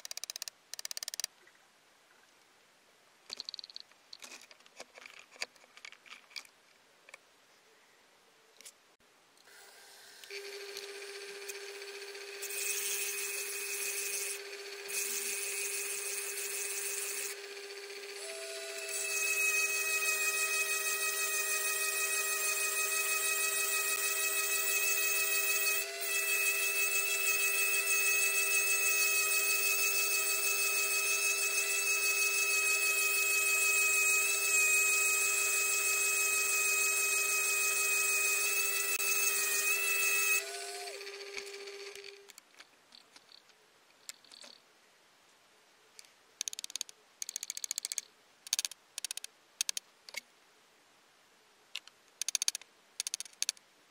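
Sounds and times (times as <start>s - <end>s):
rotary tool grinding glass: 10.3s - 42.3s
machine motor whine: 26.9s - 42.3s.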